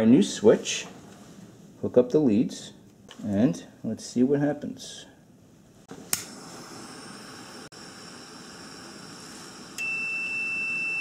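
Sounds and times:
blowtorch igniting click: 6.0 - 7.5
blowtorch hissing: 6.0 - 9.8
multimeter continuity beep: 9.8 - 11.0.

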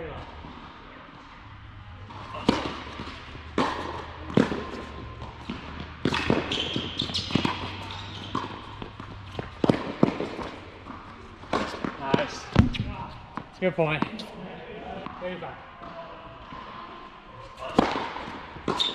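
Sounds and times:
racquets hitting tennis ball: 1.6 - 14.3, 17.6 - 18.9
ball bouncing on hard court: 2.1 - 14.2.

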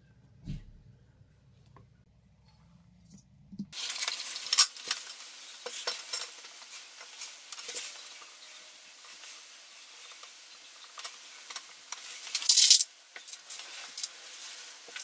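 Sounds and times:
steady hiss: 3.8 - 15.0.

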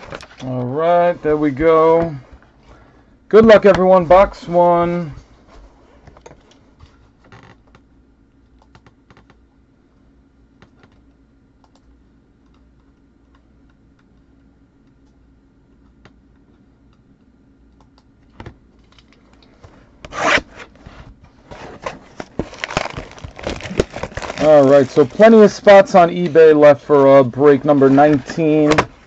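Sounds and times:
scratchy rip: 20.1 - 20.7.

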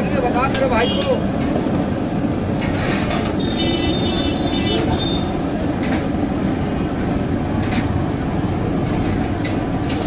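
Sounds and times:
metal spatula scraping iron griddle: 2.6 - 3.4.

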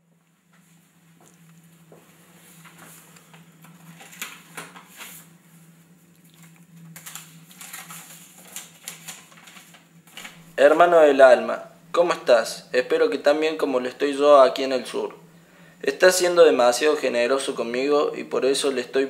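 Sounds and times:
steady low hum: 0.0 - 19.0
paper rustling: 2.4 - 5.3, 6.3 - 10.6.

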